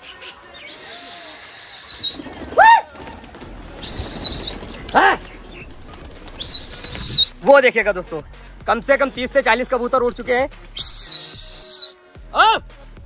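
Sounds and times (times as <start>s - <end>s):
pigeon wings flapping: 1.6s - 7.4s
loud whoops: 2.6s - 3.0s
high warbling whistle: 10.8s - 12.0s.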